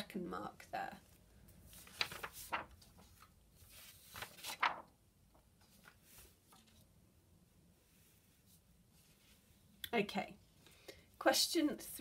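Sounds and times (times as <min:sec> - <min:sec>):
paper rustling: 0:01.4 - 0:06.9.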